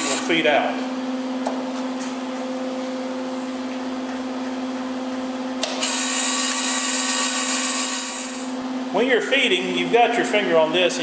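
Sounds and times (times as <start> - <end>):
welder humming: 0.0 - 0.5, 5.6 - 8.6
wire feed motor whirring: 0.0 - 0.5, 5.6 - 8.6.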